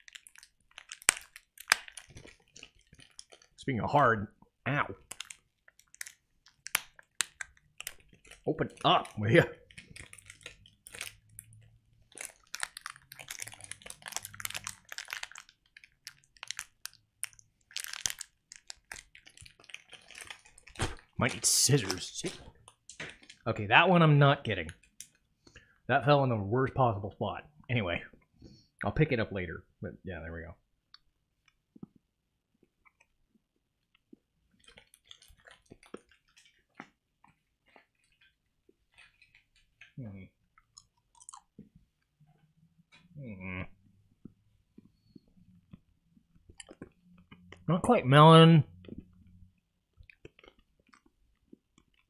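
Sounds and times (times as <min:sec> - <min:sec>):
plastic candy wrapper crinkling: 0:00.0 - 0:04.0, 0:04.9 - 0:23.6, 0:32.8 - 0:42.2, 0:49.8 - 0:52.0.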